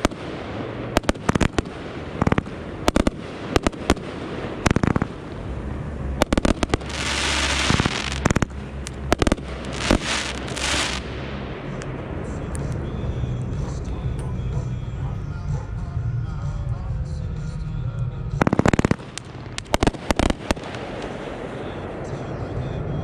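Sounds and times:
fireworks fountain hissing: 0.0 - 11.3, 18.4 - 22.3
fireworks bangs and crackles: 0.0 - 13.8, 18.3 - 23.0.

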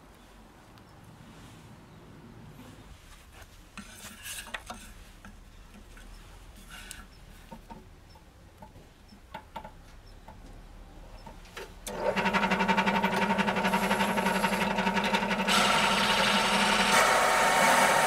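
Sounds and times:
circle cutter cutting wood: 11.9 - 18.0
drill press motor humming: 11.9 - 18.0.

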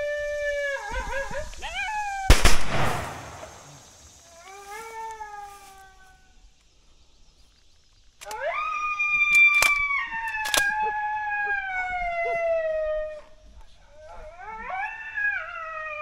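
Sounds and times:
sharp cracks: 2.3 - 4.1, 9.3 - 10.7
coyote howling: 8.2 - 13.4, 14.0 - 16.0.

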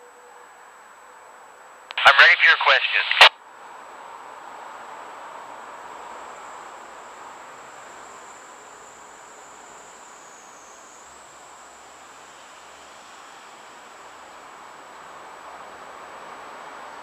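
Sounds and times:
radio static hiss: 1.9 - 3.3.

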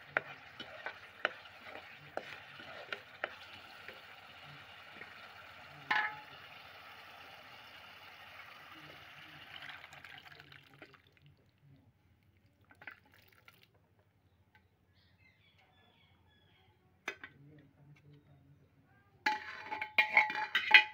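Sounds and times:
food sizzling in hot oil: 0.0 - 10.6
beans and liquid pouring: 0.0 - 11.4, 12.5 - 13.8.

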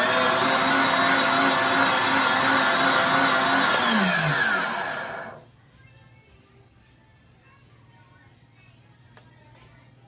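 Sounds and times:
blender motor running: 0.0 - 5.4.

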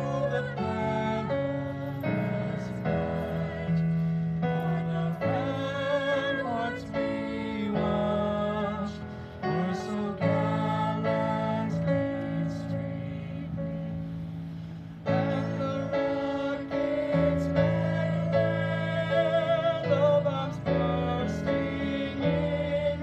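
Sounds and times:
women singing: 0.0 - 3.9, 4.5 - 13.6.

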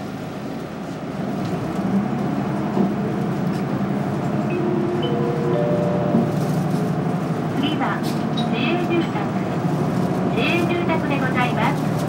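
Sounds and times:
bus engine accelerating: 0.0 - 12.0.

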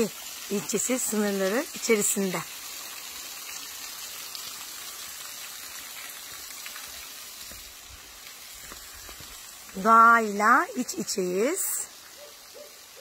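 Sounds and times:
waterfall and stream hissing: 0.0 - 13.0.

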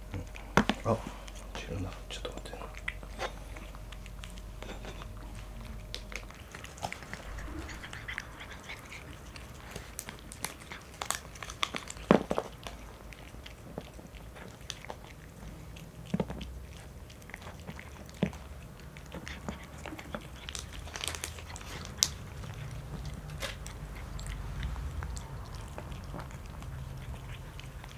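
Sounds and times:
cats chewing and licking: 0.0 - 27.9.

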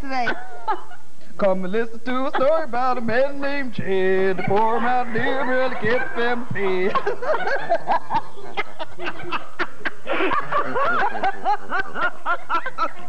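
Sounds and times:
woman laughing: 0.1 - 1.0, 2.3 - 2.8, 4.2 - 13.0
man laughing: 2.1 - 13.0.

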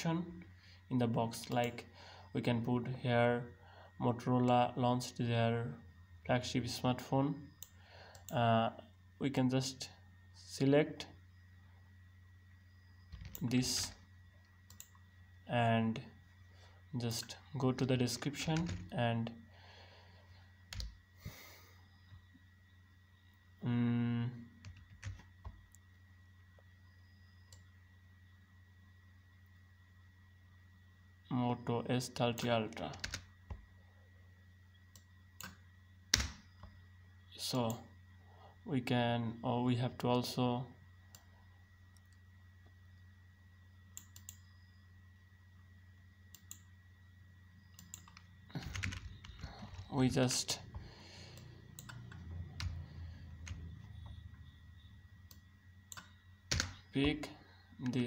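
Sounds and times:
faint steady hum: 0.0 - 58.0
computer mouse clicks: 14.7 - 15.0, 44.0 - 44.4, 46.3 - 46.7, 47.7 - 49.9, 51.3 - 52.8, 55.2 - 56.8
faint computer mouse clicks: 44.0 - 44.4.

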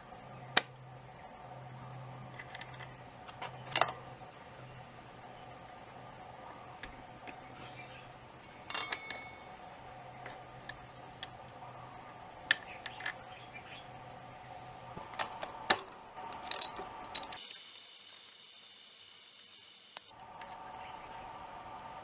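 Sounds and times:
faint steady hum: 0.0 - 22.0
metal tools clicking and clinking: 8.7 - 9.5, 16.3 - 18.5.

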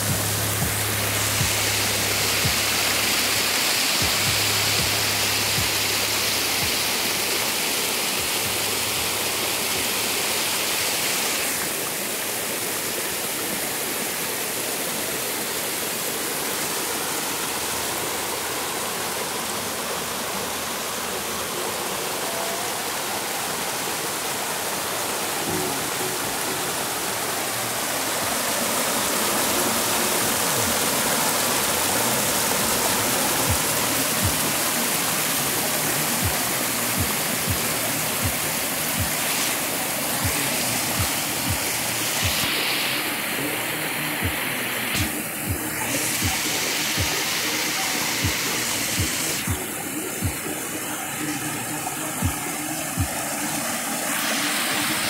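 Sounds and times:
stream water rushing over rock: 0.0 - 55.0.

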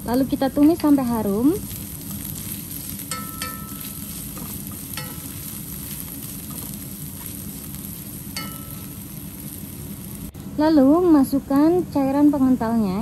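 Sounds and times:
aromatics sizzling in oil: 0.0 - 13.0
spatula knocking pan: 2.3 - 7.4, 8.2 - 9.0.

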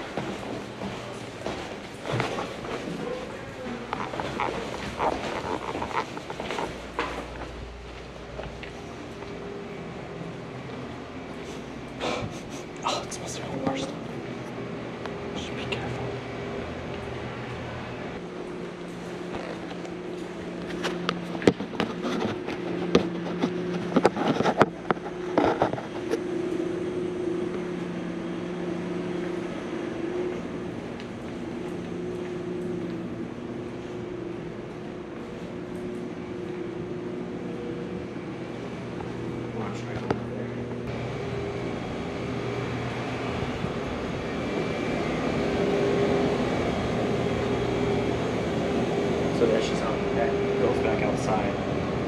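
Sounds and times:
footsteps: 0.0 - 9.6
mechanical hum: 0.0 - 52.0.

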